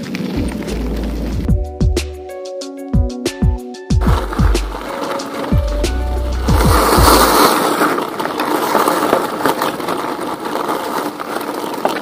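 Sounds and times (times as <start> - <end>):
bicycle tyres on gritty track: 0.0 - 1.5, 4.0 - 12.0
background music: 0.4 - 7.6.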